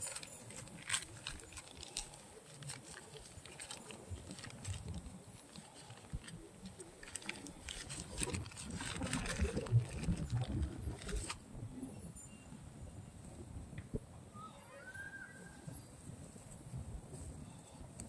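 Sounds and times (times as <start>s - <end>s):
plastic bag crackling: 0.0s - 11.4s.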